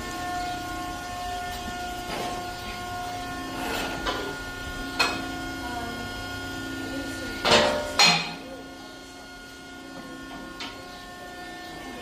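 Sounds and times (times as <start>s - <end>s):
hydraulic pump humming: 0.0s - 12.0s.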